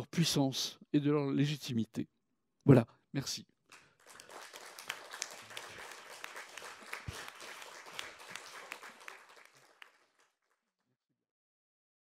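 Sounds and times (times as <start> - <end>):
audience applauding: 3.7 - 10.7.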